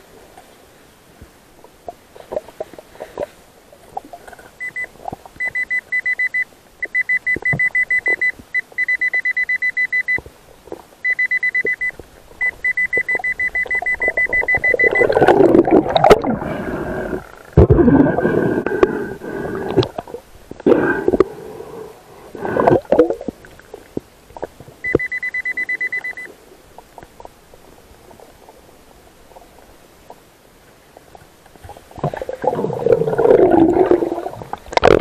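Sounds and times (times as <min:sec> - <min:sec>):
metal detector rapid beeping: 0:11.1 - 0:15.1.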